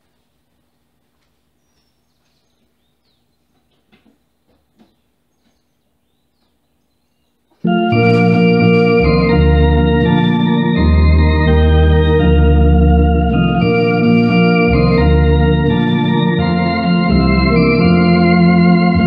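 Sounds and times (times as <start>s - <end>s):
electronic organ playing a hymn: 7.6s - 19.0s
deep pedal bass notes: 7.7s - 19.0s.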